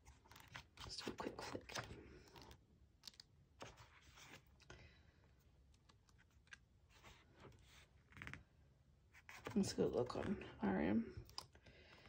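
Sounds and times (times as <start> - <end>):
paper pages flipping: 0.0 - 4.7, 5.8 - 8.5, 9.2 - 9.6.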